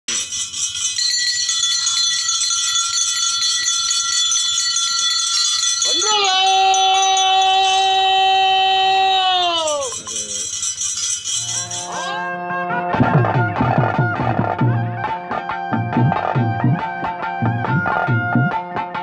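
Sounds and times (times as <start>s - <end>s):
light jingling shimmer: 0.1s - 12.2s
wind instrument notes: 11.2s - 19.0s.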